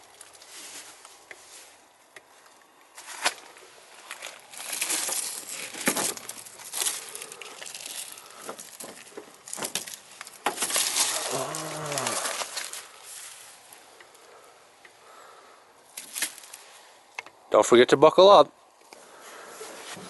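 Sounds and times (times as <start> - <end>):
dry leaves rustling and crunching: 3.0 - 13.8, 15.9 - 16.8.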